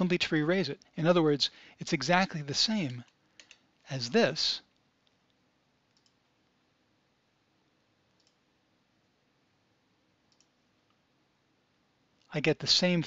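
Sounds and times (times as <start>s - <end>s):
faint computer mouse clicks: 2.9s - 3.6s, 5.9s - 6.2s, 8.2s - 8.4s, 10.3s - 11.0s.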